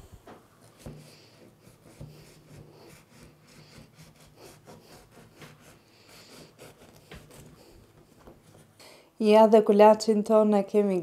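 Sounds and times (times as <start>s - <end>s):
knife sawing through bread crust: 0.6s - 8.8s.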